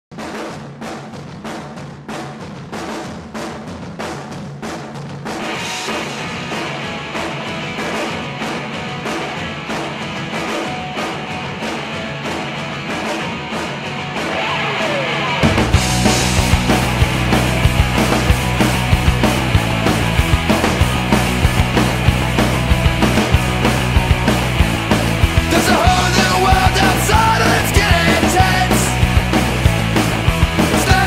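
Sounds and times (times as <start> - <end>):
band music with drum beat: 0.1 - 31.0.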